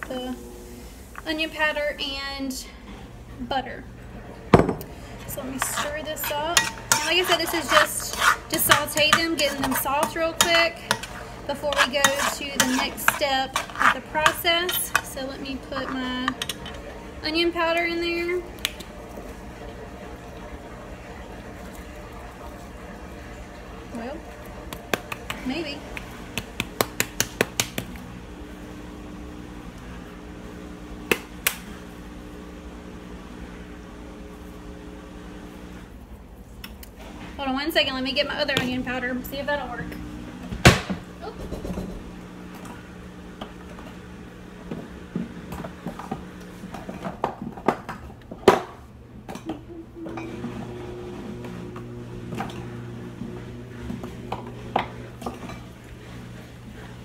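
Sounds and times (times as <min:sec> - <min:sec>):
clothes dryer humming: 0:00.0 - 0:57.0
kitchen containers and utensils clinking: 0:04.6 - 0:16.8.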